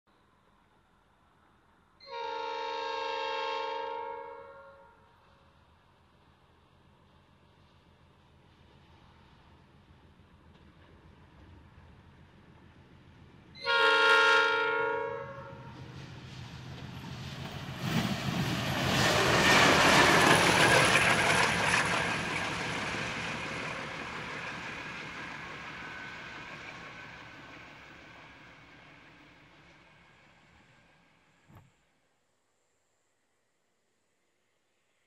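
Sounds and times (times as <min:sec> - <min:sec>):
locomotive horn blast: 0:02.1 - 0:05.0, 0:13.6 - 0:15.7
locomotive engine and wheel noise: 0:15.6 - 0:31.7.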